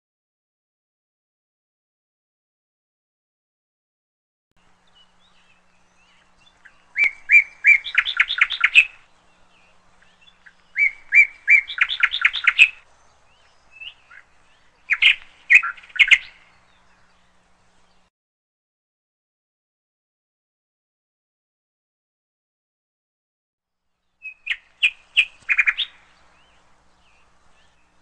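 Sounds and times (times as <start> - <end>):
bird singing trills: 4.6 - 18.1, 24.0 - 28.0.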